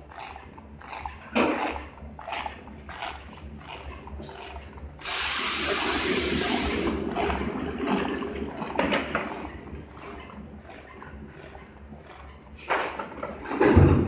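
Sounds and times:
machine rushing hiss: 5.0s - 6.9s.

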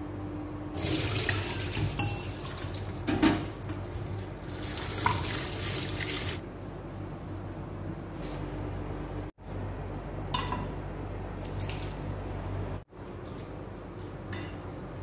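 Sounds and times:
tap water running into sink: 0.8s - 6.4s.

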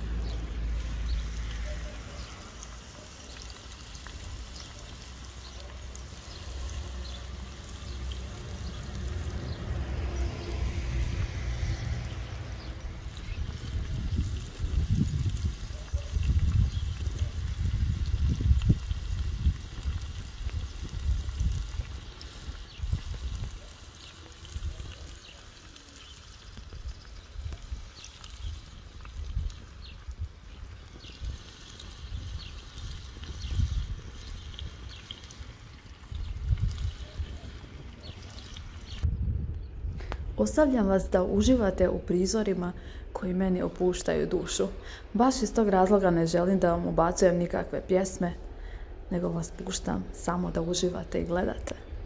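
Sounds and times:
food sizzling with pops: 0.0s - 39.1s
wind rumble on microphone: 7.9s - 25.2s, 26.3s - 52.0s.

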